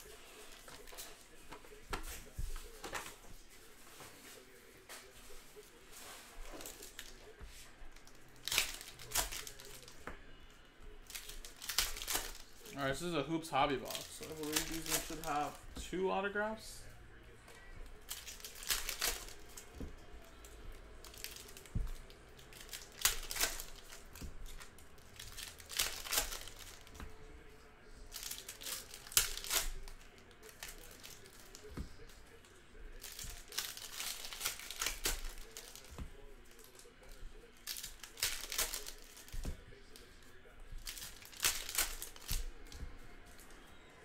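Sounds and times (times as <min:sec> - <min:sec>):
card pack wrappers tearing: 0:08.0 - 0:10.0, 0:11.0 - 0:16.2, 0:18.0 - 0:19.8, 0:20.4 - 0:27.1, 0:28.1 - 0:32.2, 0:32.8 - 0:43.4.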